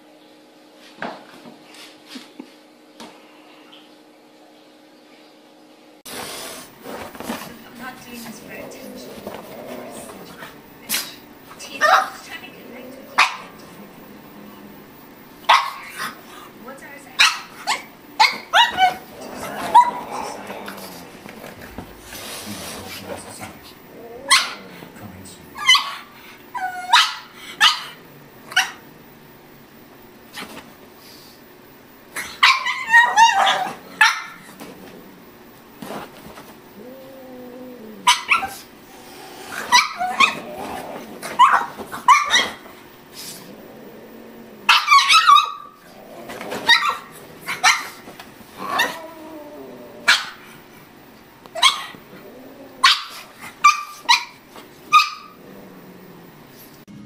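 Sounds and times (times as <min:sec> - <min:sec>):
dog barking: 0:11.8 - 0:12.2, 0:13.2 - 0:13.5, 0:15.4 - 0:16.1, 0:17.2 - 0:19.0, 0:24.3 - 0:24.7, 0:25.6 - 0:26.1, 0:26.8 - 0:28.8, 0:32.4 - 0:34.4, 0:38.0 - 0:38.6, 0:39.7 - 0:40.4, 0:41.4 - 0:42.6, 0:44.7 - 0:45.8, 0:46.7 - 0:48.0, 0:50.1 - 0:50.4, 0:51.6 - 0:52.0, 0:52.8 - 0:55.4.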